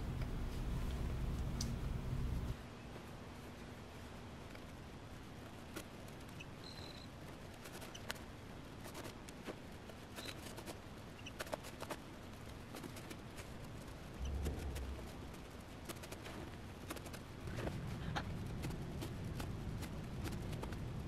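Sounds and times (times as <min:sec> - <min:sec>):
small clicks and scratches: 0:05.4 - 0:21.0.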